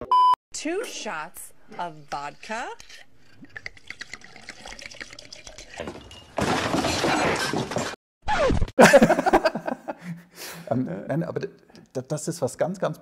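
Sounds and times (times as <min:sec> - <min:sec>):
voice: 0:00.6 - 0:02.8, 0:10.7 - 0:13.0.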